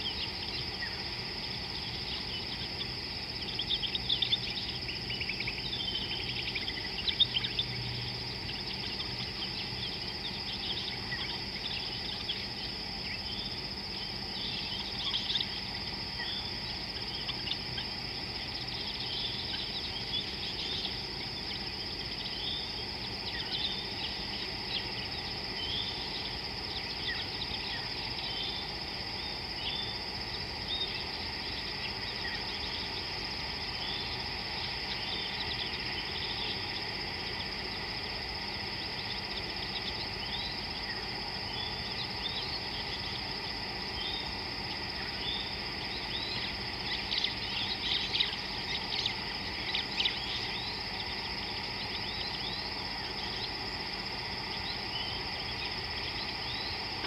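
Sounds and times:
high insect trill: 0:00.0 - 0:57.0
bird chirps: 0:01.8 - 0:28.8.

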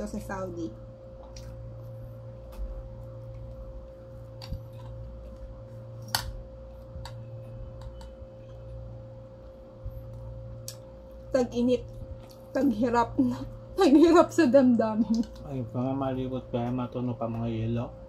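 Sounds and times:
low electrical hum: 0:00.0 - 0:18.0
chewing clicks and smacks: 0:01.2 - 0:01.6.

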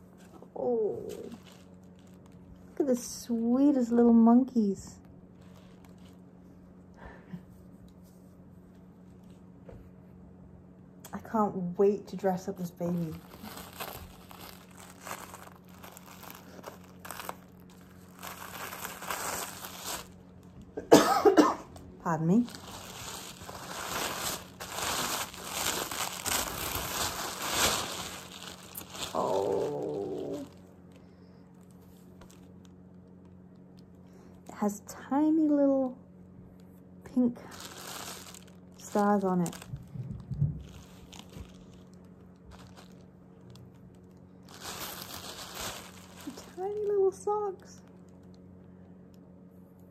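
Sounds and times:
tissue paper crinkling: 0:00.0 - 0:04.7, 0:05.3 - 0:06.3, 0:12.1 - 0:20.7, 0:21.7 - 0:31.0, 0:31.6 - 0:32.8, 0:37.2 - 0:48.5.

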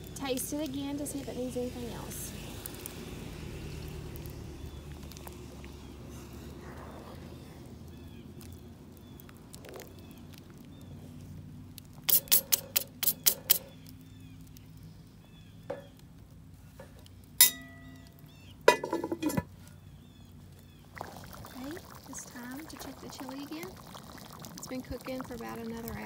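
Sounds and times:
cast-iron lid clanking: 0:17.4 - 0:18.0, 0:18.7 - 0:19.5.

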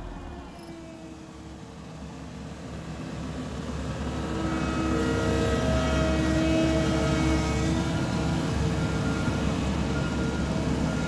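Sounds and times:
diesel roller engine rumbling: 0:00.0 - 0:04.3.

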